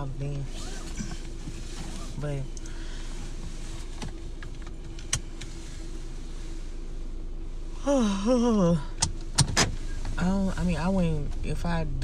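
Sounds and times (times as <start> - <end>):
car cabin hum: 0.0 - 12.0
person's wavering voice: 7.8 - 9.0.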